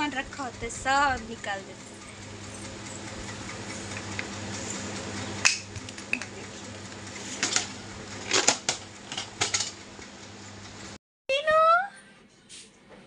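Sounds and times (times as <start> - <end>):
steady low hum: 0.0 - 11.0.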